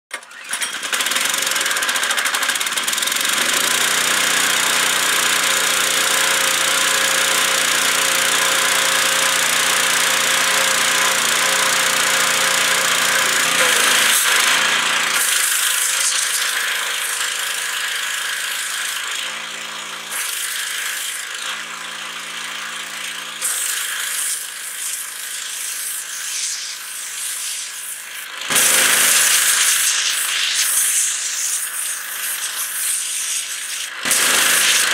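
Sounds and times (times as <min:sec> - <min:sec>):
pressure washer engine hum: 0:02.2 - 0:18.8, 0:19.4 - 0:34.9
high-pressure water jet hissing: 0:08.0 - 0:19.0, 0:20.1 - 0:21.4, 0:23.4 - 0:34.9.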